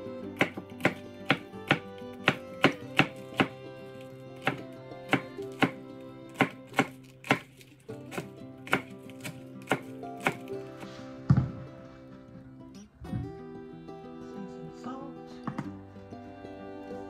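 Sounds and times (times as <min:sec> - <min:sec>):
soft background music: 0:00.0 - 0:17.0
knife chopping on cutting board: 0:00.4 - 0:03.6, 0:04.4 - 0:05.8, 0:06.4 - 0:10.5.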